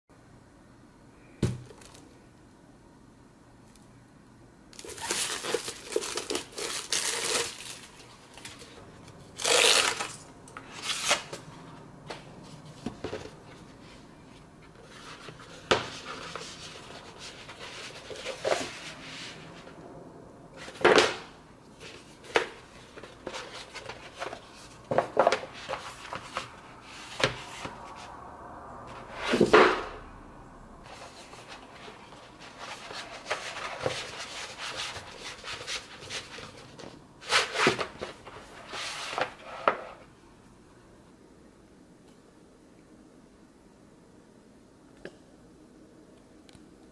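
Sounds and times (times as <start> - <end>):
plastic wrap crinkling and tearing: 4.8 - 8.7, 9.4 - 11.3.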